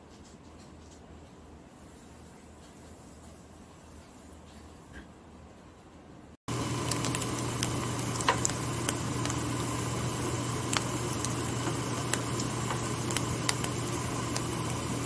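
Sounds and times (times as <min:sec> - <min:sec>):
eggs sizzling in a frying pan: 0:06.5 - 0:15.0
sharp pops and crackles: 0:06.5 - 0:15.0.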